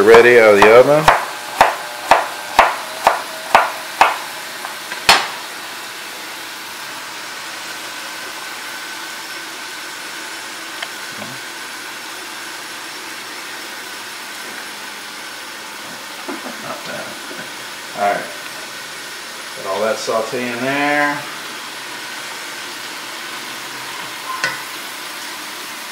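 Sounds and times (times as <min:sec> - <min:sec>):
knife chopping on wooden board: 0:00.1 - 0:05.4
food sizzling in pans: 0:00.2 - 0:25.9.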